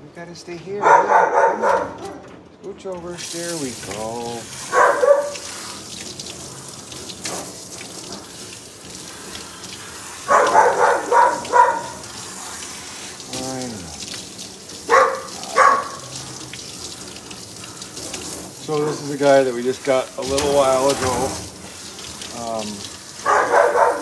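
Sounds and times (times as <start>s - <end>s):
dog yelping: 0.8s - 2.2s, 4.7s - 5.5s, 10.2s - 12.1s, 14.8s - 16.1s, 23.2s - 24.0s
water spraying onto dog: 3.1s - 24.0s.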